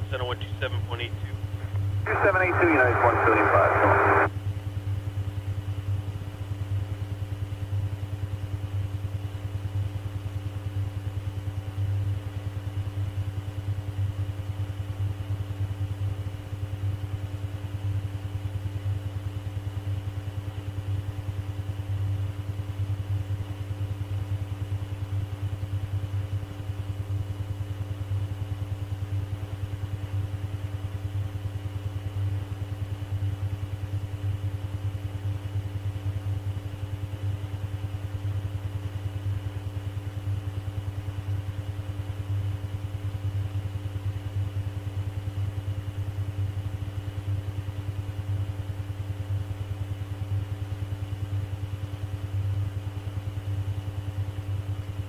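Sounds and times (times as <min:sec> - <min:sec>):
faint steady tones: 0:00.0 - 0:04.3
low electrical hum: 0:00.0 - 0:55.0.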